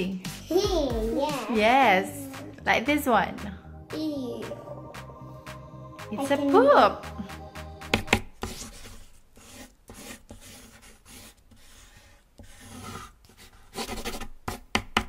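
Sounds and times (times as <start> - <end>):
pencils scratching on paper: 8.0 - 15.0.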